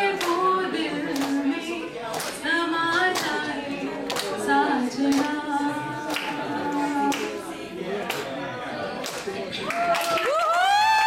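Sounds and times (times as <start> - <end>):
woman singing unaccompanied: 0.0 - 7.7
hand claps: 1.1 - 1.4, 2.1 - 3.4, 4.1 - 4.4, 5.1 - 5.4, 6.1 - 6.4.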